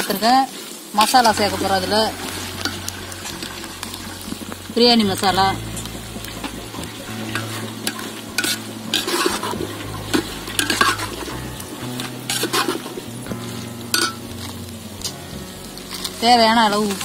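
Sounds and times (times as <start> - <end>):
vegetables sizzling in pot: 0.0 - 17.0
ladle scraping metal pot: 1.2 - 13.0, 13.9 - 15.2.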